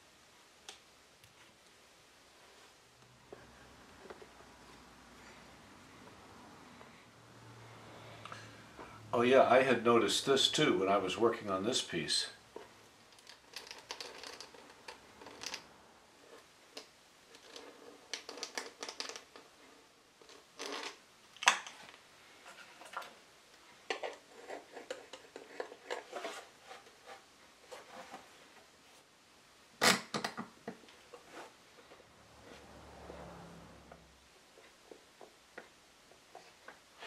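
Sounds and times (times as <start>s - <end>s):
tools scraping and tapping wood: 23.8s - 28.7s.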